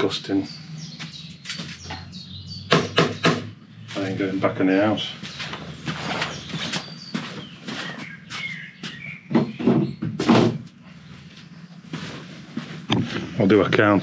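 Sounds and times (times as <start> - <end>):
bird chirping: 0.0 - 14.0
knocks and thuds: 2.7 - 3.6, 9.3 - 10.7.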